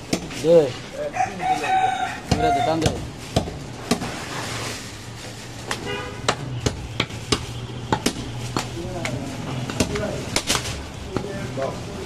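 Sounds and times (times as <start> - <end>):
vehicle horn toot: 5.8 - 7.9.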